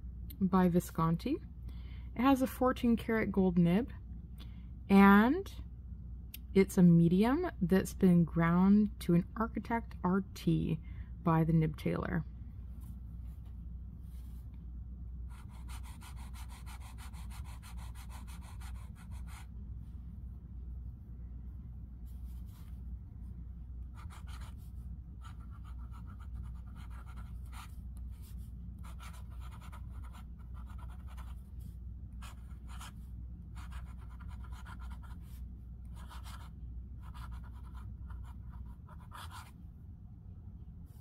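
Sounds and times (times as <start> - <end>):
steady low hum: 0.0 - 41.0
pen nib scratching on paper: 15.3 - 19.5, 24.0 - 24.6, 25.2 - 28.2, 28.8 - 31.4, 32.2 - 33.0, 33.6 - 35.2, 35.9 - 39.5.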